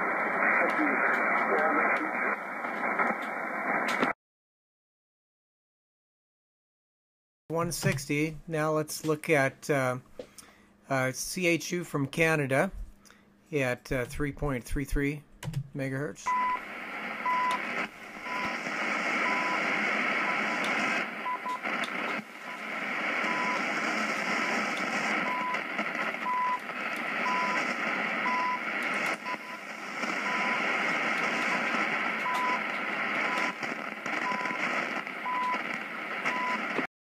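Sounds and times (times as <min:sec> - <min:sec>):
radio static and hiss: 0:00.0 - 0:04.2, 0:15.9 - 0:36.9
short radio beeps: 0:16.3 - 0:16.6, 0:17.2 - 0:35.6, 0:36.3 - 0:36.7.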